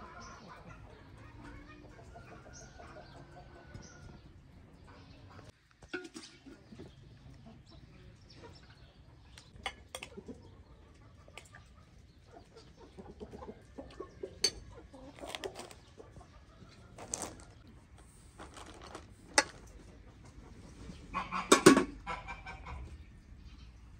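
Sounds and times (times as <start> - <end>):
chickens clucking: 0.0 - 23.7
spoon clinking on plates: 14.4 - 14.7.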